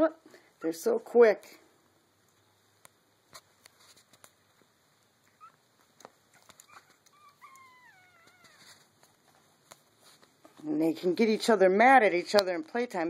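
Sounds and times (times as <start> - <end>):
puppy whimpering: 5.3 - 5.7, 6.3 - 8.9.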